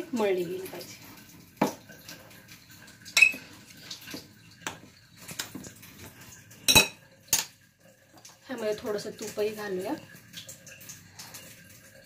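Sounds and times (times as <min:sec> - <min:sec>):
spoon clinking on glass bowl: 0:03.2 - 0:03.4, 0:06.7 - 0:07.5.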